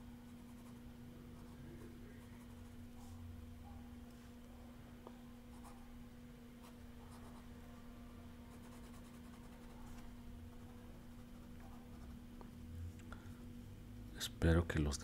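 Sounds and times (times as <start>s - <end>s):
steady low hum: 0.0s - 15.0s
pen scratching on paper: 8.5s - 9.8s.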